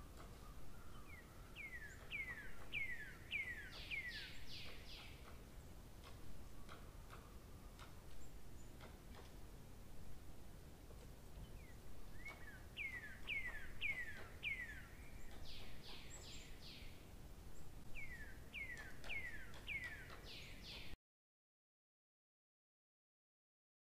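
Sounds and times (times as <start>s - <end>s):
small bird chirping: 0.0s - 9.3s, 11.3s - 21.0s.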